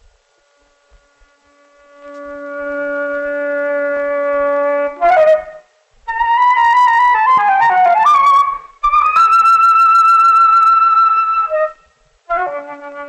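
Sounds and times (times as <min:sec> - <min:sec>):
wind instruments film music: 0:00.1 - 0:13.0.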